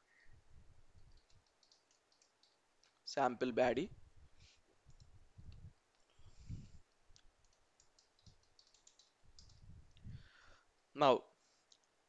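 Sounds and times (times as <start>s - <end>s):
keyboard and mouse clicking: 1.0s - 3.0s, 4.8s - 6.1s, 6.9s - 10.0s, 11.7s - 12.0s.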